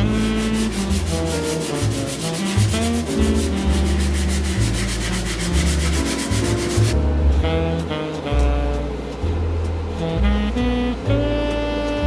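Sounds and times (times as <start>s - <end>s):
hand-sanding wood: 0.0s - 7.0s
background music: 0.0s - 12.0s.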